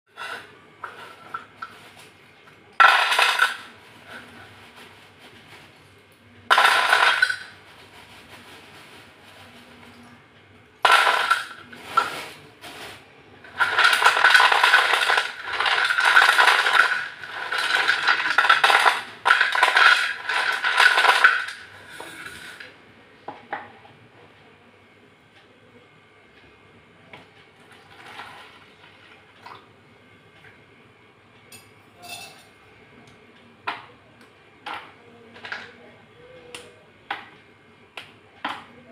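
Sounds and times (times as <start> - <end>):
pencil pieces clattering on a plate: 2.8 - 3.7, 6.5 - 7.6, 10.8 - 12.1, 13.5 - 22.6.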